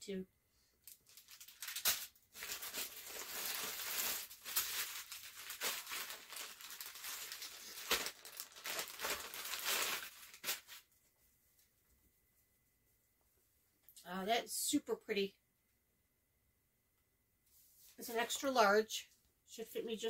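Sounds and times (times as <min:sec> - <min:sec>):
packaging crinkling and tearing: 0:00.8 - 0:10.8.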